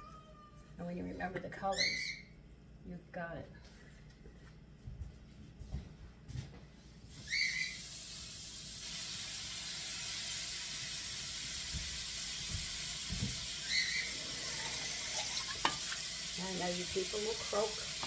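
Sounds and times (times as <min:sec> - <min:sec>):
meat sizzling in a frying pan: 0:07.1 - 0:18.0.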